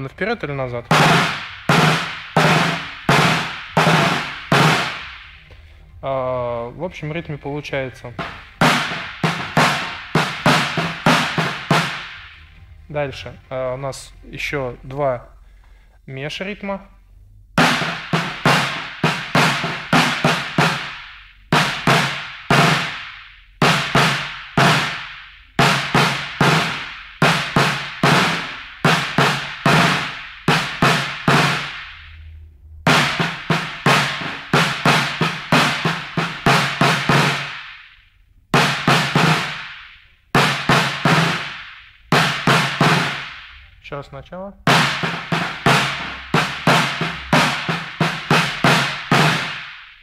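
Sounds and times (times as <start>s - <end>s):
snare drum rhythmic strokes: 0.0s - 15.8s, 17.6s - 44.0s, 44.6s - 50.0s.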